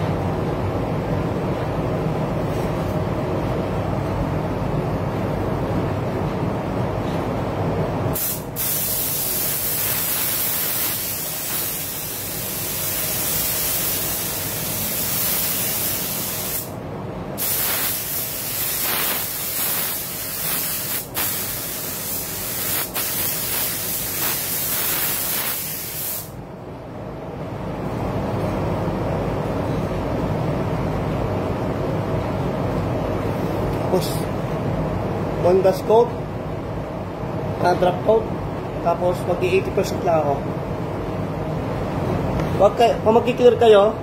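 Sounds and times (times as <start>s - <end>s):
spray gun hissing: 8.2s - 16.8s, 17.4s - 26.4s.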